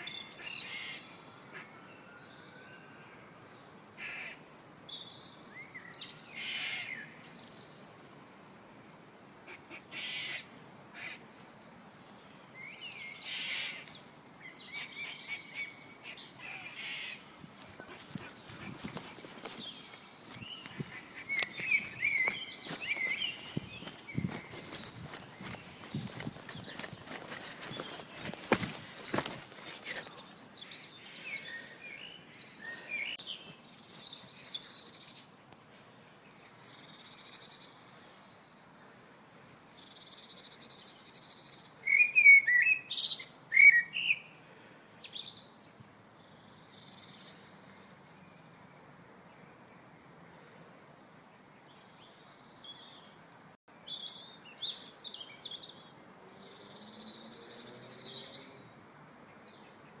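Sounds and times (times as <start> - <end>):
birds chirping and singing: 0.0 - 2.4, 11.4 - 35.3, 51.4 - 60.0.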